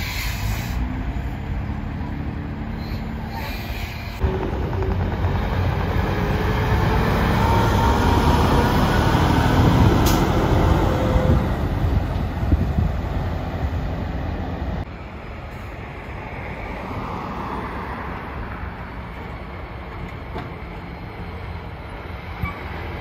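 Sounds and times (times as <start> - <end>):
truck engine rumble: 0.0 - 16.8
truck tyre noise: 0.0 - 16.8.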